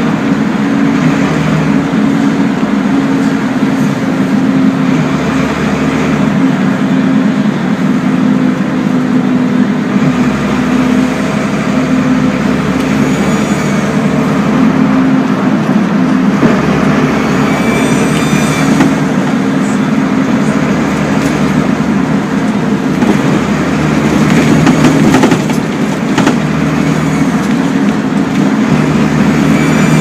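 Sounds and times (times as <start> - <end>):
bus engine and road noise: 0.0 - 30.0.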